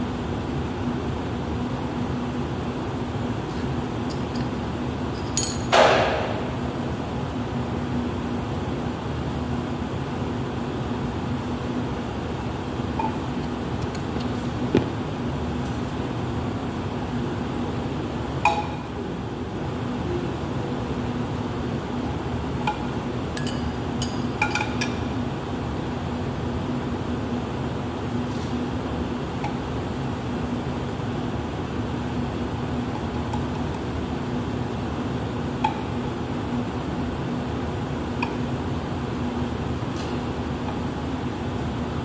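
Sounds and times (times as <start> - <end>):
steady fan-like hum: 0.0 - 42.0
metal and glass clinks: 5.2 - 5.7.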